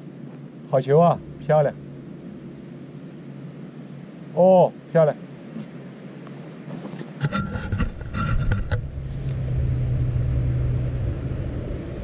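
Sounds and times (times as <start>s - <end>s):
steady low hum: 0.0s - 12.0s
low rumble: 0.6s - 4.4s, 7.2s - 12.0s.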